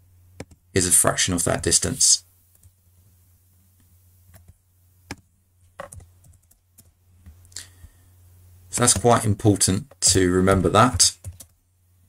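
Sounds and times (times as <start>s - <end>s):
steady low hum: 0.0s - 12.0s
computer keyboard keystrokes: 5.8s - 6.9s, 11.2s - 11.6s.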